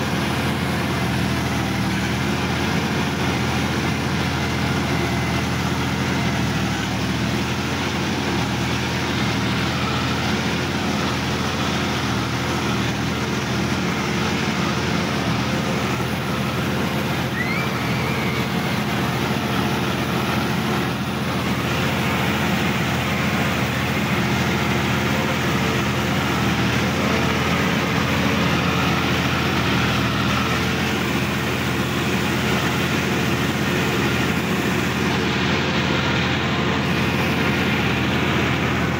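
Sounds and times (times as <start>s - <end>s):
tractor diesel engine running: 0.0s - 38.9s.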